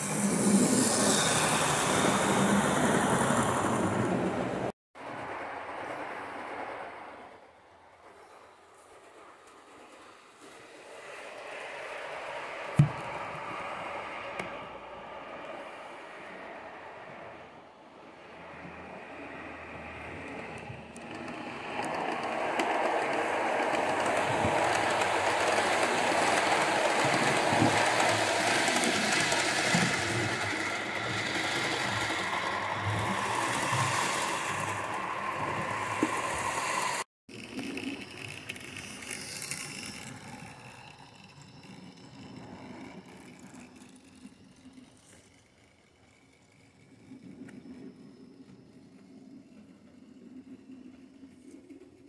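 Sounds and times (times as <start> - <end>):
model train running on track: 0.0 - 52.0
wheels clicking over rail joints: 18.4 - 52.0.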